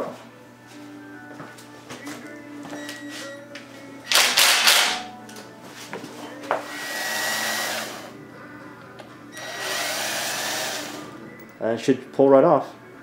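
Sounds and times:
power ratchet whirring: 6.7 - 8.1, 9.4 - 11.1.

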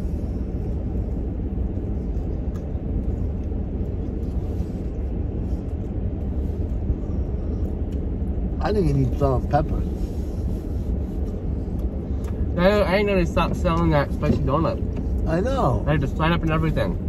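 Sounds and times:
car engine idling: 0.0 - 17.0
faint eating clicks: 0.6 - 6.8.

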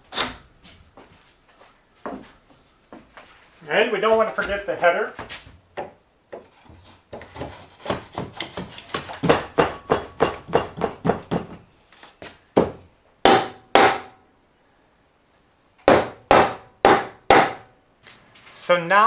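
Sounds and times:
hammer blows on wood: 13.2 - 14.2, 15.9 - 17.7.

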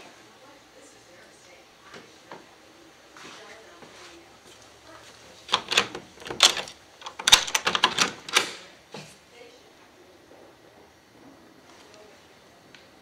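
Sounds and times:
door knob and latch rattling: 5.5 - 8.5.

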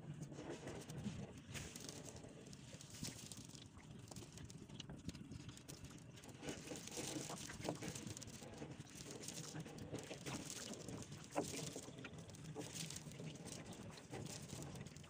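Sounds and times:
net crackling and rustling: 0.8 - 4.6, 5.3 - 15.0.

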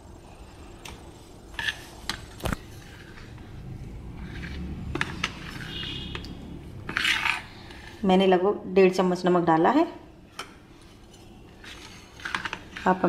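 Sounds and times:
spoon stirring thick batter: 0.5 - 8.0, 10.3 - 13.0.

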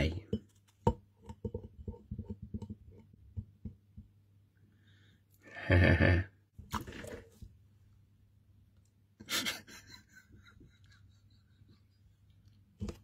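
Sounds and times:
soft taps and handling noise: 0.0 - 4.3, 12.5 - 13.0.

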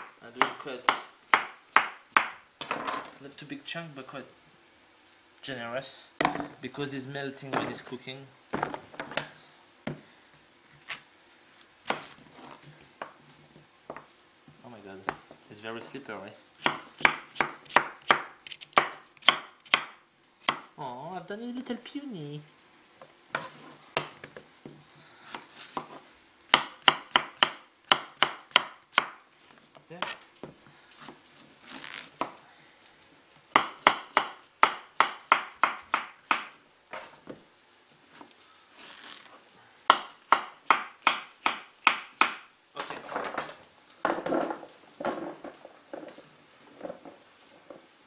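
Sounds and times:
knife chopping on wooden board: 0.0 - 2.4, 16.6 - 19.9, 25.3 - 29.2, 33.6 - 36.5, 39.9 - 42.4.

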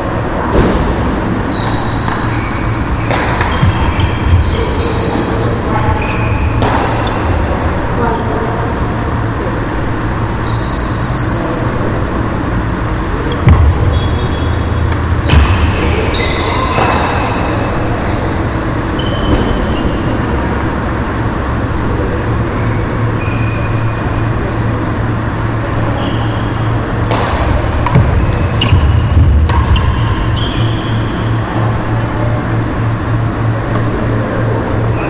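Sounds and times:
racket hitting shuttlecock: 3.0 - 4.1, 27.0 - 30.1
low rumble: 11.9 - 23.2.

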